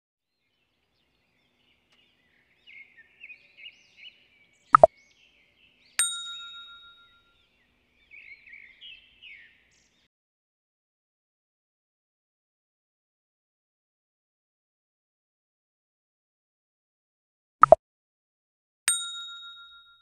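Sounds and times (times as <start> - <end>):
short bird chirps: 1.0 - 5.4
bright bell ding: 6.0 - 7.3, 18.9 - 20.0.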